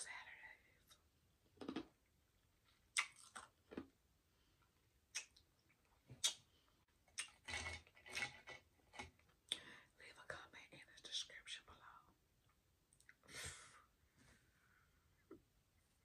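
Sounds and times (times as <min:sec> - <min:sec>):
mouth clicks from chewing: 0:02.9 - 0:03.9, 0:05.1 - 0:05.4, 0:06.2 - 0:06.4.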